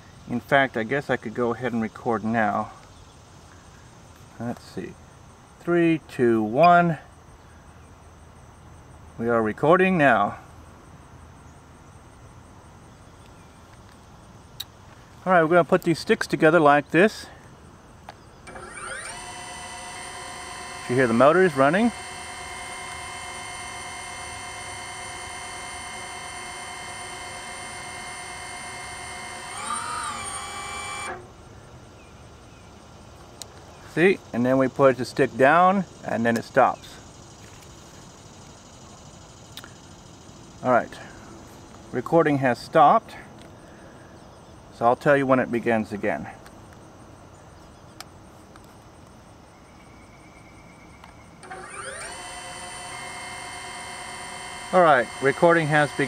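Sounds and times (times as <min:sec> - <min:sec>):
drone motors whining: 0:18.4 - 0:31.3, 0:51.0 - 0:56.0.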